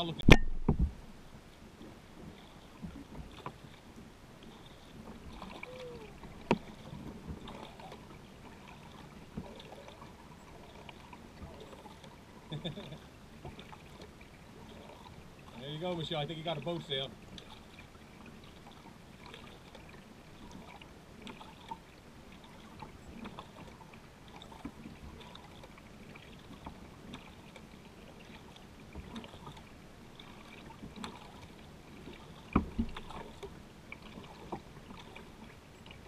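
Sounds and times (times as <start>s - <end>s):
paddle splashing in water: 0.0s - 36.0s
water lapping: 0.0s - 36.0s.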